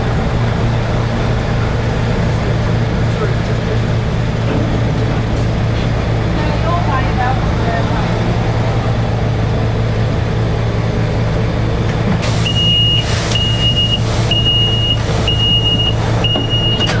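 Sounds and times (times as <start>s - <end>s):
tram engine humming: 0.0s - 17.0s
electronic warning beeps: 12.5s - 17.0s.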